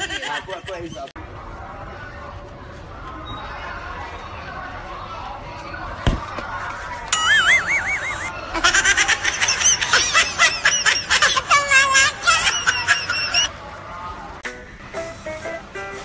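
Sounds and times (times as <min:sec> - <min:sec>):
short warbling tone: 0:07.1 - 0:08.3
comic laughter sound effect: 0:07.2 - 0:13.5.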